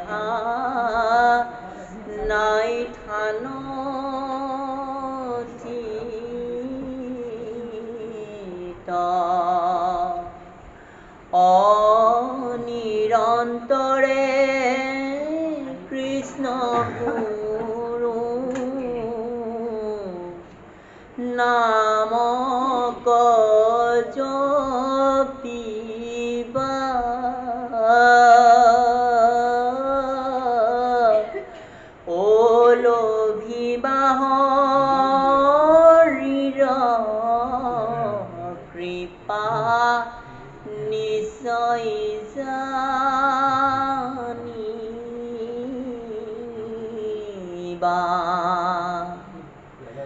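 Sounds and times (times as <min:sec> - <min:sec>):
man chanting melodically: 0:00.0 - 0:10.4, 0:11.4 - 0:20.4, 0:32.1 - 0:50.0.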